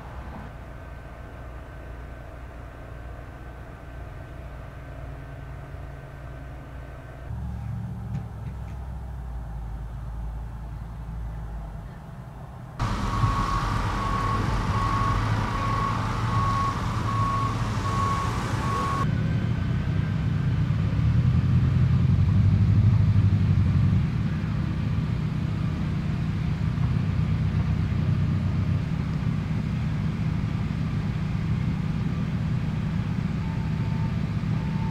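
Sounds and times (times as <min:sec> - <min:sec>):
heavy truck engines running: 0:07.3 - 0:34.9
backup alarm beeping: 0:12.8 - 0:19.1.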